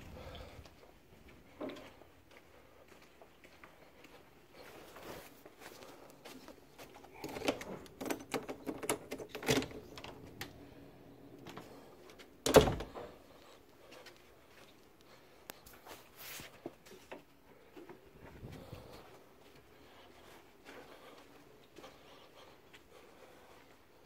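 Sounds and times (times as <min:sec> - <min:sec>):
door latch clicks and rattles: 0:07.3 - 0:10.6, 0:12.4 - 0:13.0.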